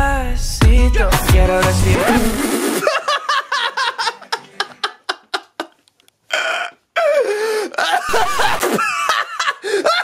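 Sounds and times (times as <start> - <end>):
man laughing: 2.8 - 5.8, 7.0 - 10.0.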